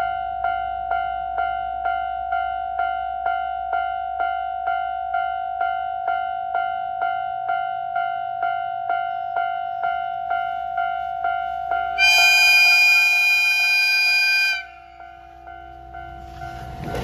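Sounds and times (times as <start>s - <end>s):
level-crossing bell dinging: 0.0s - 17.0s
train horn blast: 12.0s - 15.5s.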